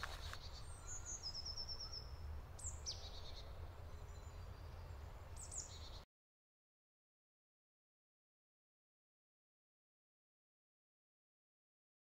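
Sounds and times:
bird chirps sweeping downward: 0.2 - 6.0.

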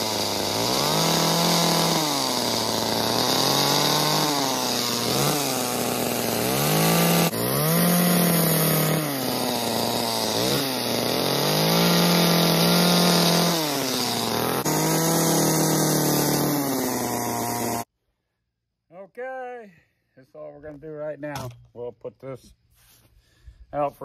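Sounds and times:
chainsaw carving wood: 0.0 - 17.9.

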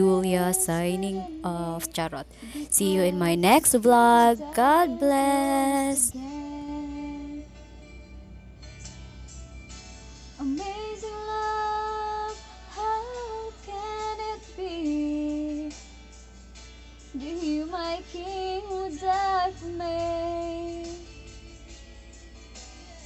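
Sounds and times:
woman singing slow melody: 0.0 - 7.6, 10.4 - 15.8, 17.1 - 21.2.

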